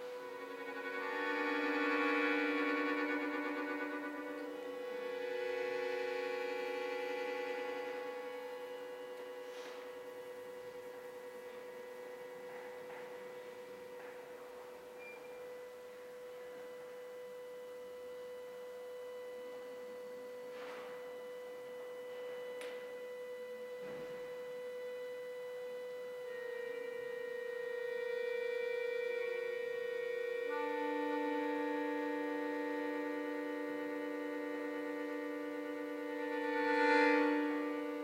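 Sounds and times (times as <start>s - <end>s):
button accordion notes: 0.0s - 9.7s, 26.3s - 38.0s.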